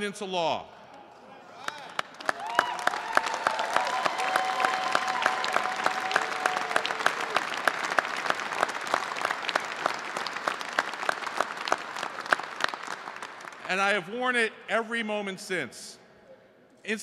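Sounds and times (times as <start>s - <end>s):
audience applauding: 1.6s - 13.9s.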